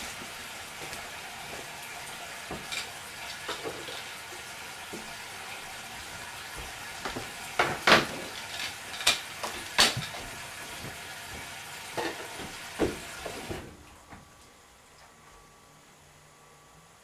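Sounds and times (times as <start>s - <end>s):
food sizzling in a pan: 0.0s - 13.7s
kitchen knocks and clatters: 2.5s - 4.1s, 6.6s - 13.8s.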